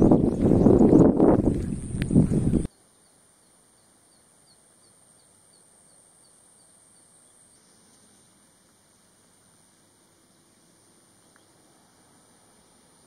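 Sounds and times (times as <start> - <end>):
faint background hiss: 2.6 - 13.0
high ticks: 11.2 - 11.6.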